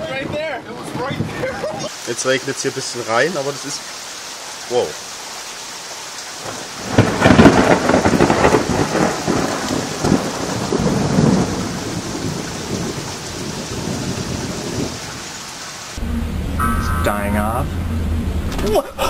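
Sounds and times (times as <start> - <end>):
steady rain: 0.0 - 19.0
thunderclap with rumble: 6.4 - 15.2.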